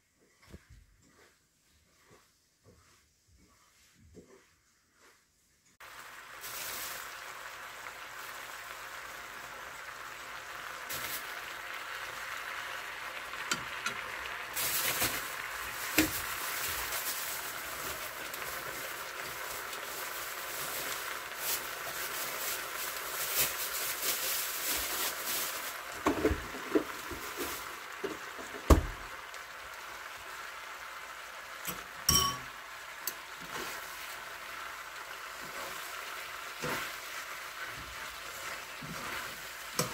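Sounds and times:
food sizzling in a frying pan: 5.7s - 39.9s
utensils clinking against pan: 31.6s - 32.6s, 38.8s - 39.9s.

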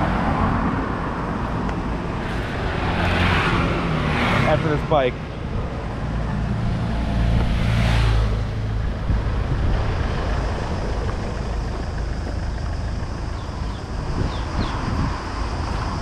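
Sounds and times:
motorbike passing: 0.0s - 16.0s
steady background rush: 0.0s - 16.0s.

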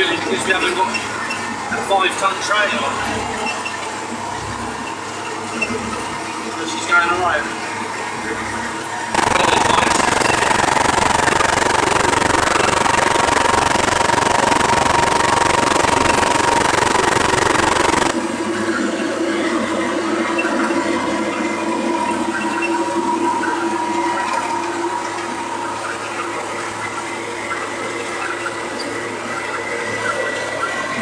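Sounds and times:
steady hum: 9.1s - 18.2s
truck engine drone: 9.1s - 20.4s.

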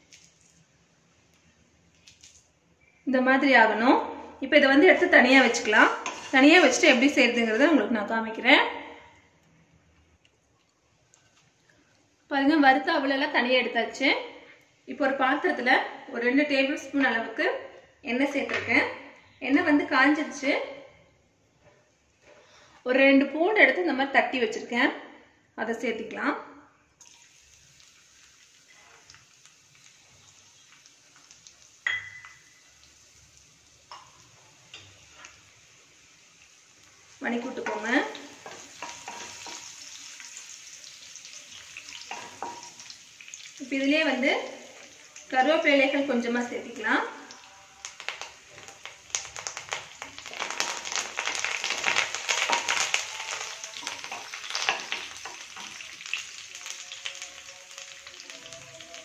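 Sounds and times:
garlic sizzling in oil: 0.0s - 8.4s, 27.0s - 59.0s
wooden spatula stirring: 5.2s - 7.1s.

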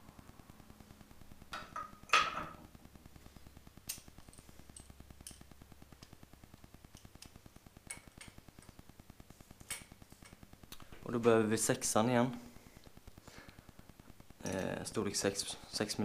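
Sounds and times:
small metal parts clicking: 3.8s - 6.1s.

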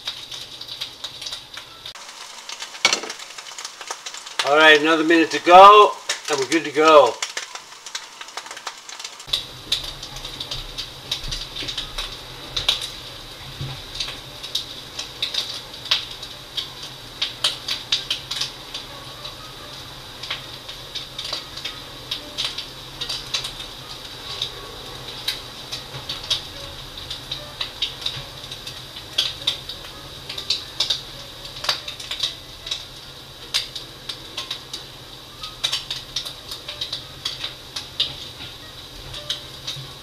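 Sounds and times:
food sizzling in a skillet: 0.0s - 40.0s.

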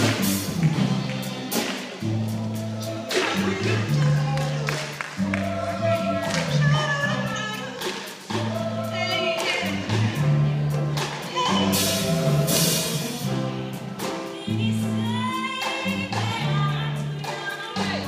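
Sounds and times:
women singing in harmony: 8.4s - 9.9s.

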